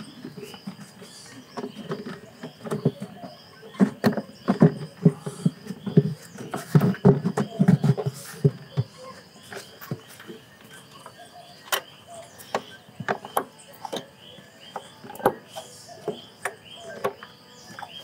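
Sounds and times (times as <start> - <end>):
insects chirping: 0.0 - 18.0
plastic lid knocking and rattling: 0.2 - 9.0.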